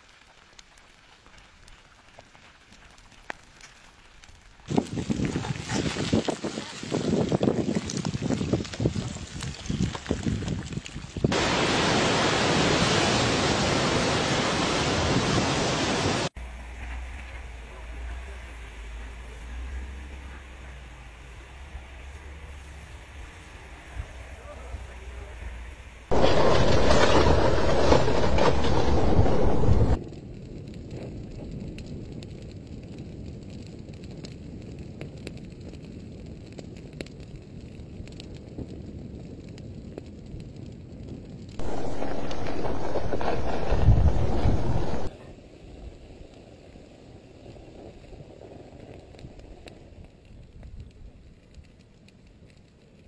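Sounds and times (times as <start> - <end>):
lava crackling and popping: 0.0 - 15.3, 16.0 - 53.0
low rushing noise: 16.4 - 30.0, 41.6 - 45.1
loud rushing noise: 26.1 - 30.0, 41.6 - 45.1.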